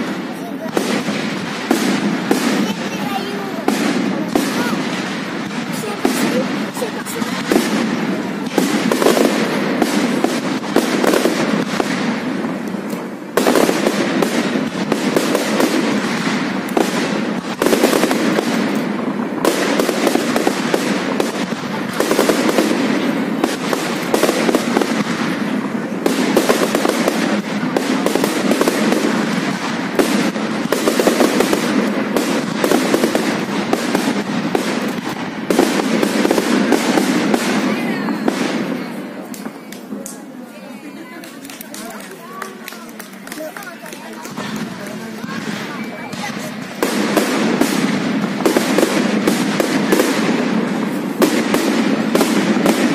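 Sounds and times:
fireworks crackling and banging: 0:00.0 - 0:52.9.

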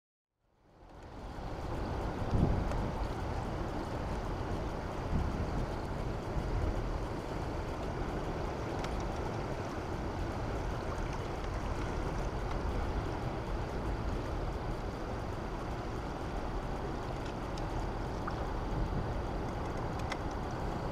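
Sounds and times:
faint high whine: 0:00.4 - 0:20.9
wind buffeting microphone: 0:01.5 - 0:20.9
churning water: 0:01.6 - 0:20.9.

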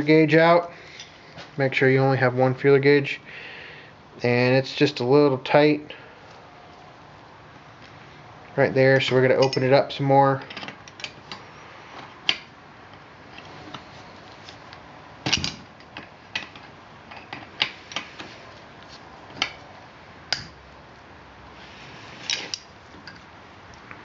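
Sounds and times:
metal clicks of wrenches: 0:09.0 - 0:09.8.

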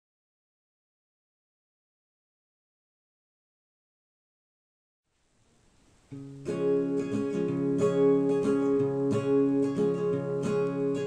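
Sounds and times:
acoustic guitar strumming: 0:06.0 - 0:11.0.

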